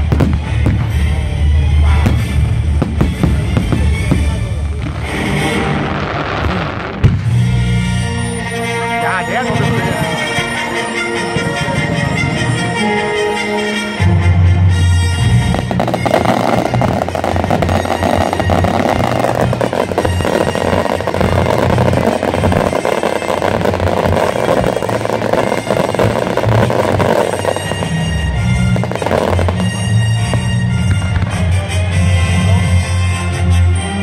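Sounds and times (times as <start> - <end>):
fireworks crackling: 0.0 - 8.4, 15.2 - 32.3
music playing: 0.0 - 34.0.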